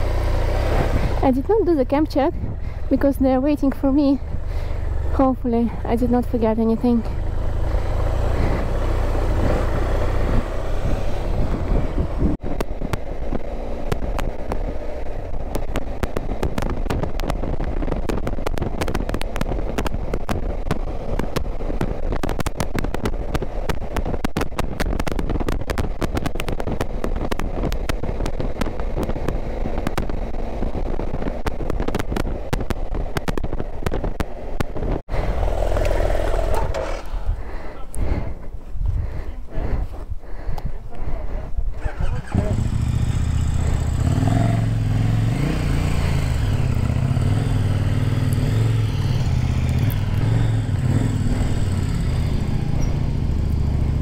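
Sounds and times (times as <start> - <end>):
motorcycle engine: 0.0 - 38.4, 41.7 - 54.0
wind rumble on microphone: 0.0 - 54.0
crackling and ticking: 12.4 - 38.2.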